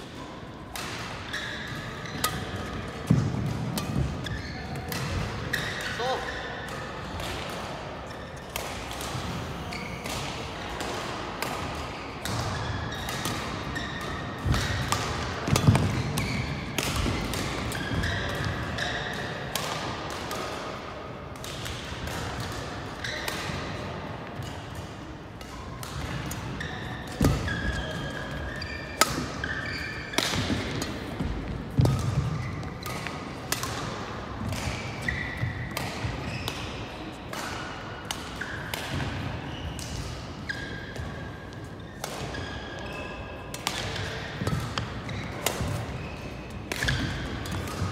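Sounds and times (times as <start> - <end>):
rackets striking shuttlecock: 0.2 - 6.0, 6.6 - 47.9
shoes squeaking: 3.8 - 6.6, 26.6 - 31.4.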